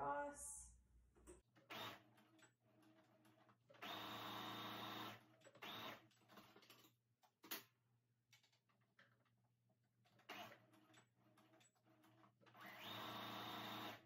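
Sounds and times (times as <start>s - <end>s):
sewing machine stitching: 1.6s - 6.9s, 10.1s - 14.0s.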